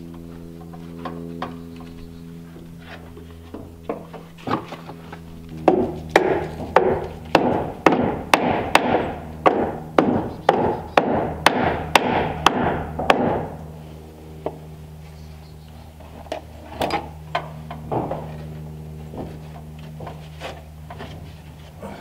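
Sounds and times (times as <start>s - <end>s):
hammer driving nails into wood: 5.6s - 13.5s.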